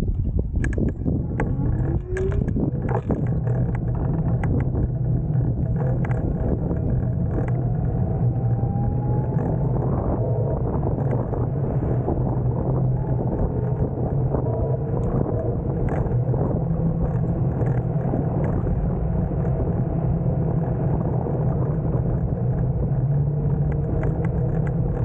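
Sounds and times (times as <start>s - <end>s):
tyres rumbling on asphalt: 0.0s - 25.0s
electric motor whine rising: 1.2s - 20.2s.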